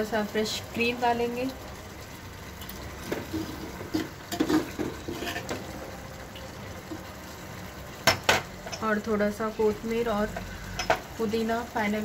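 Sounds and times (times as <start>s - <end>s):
spoon scraping clay pot: 3.2s - 5.7s.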